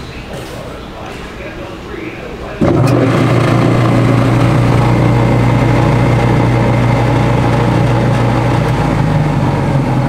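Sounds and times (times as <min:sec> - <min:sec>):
motor spinning alternator drone: 0:02.6 - 0:10.0.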